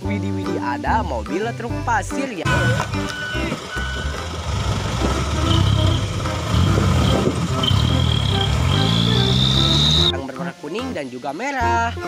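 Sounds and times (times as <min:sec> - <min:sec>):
truck engine labouring: 0:02.4 - 0:10.2.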